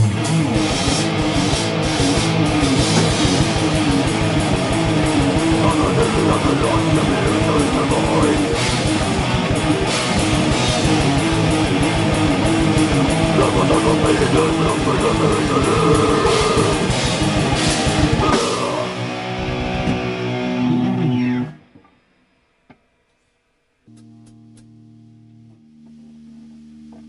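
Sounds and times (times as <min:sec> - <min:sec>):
drum kit fast beat: 0:00.0 - 0:19.1
electric guitars: 0:00.0 - 0:21.9.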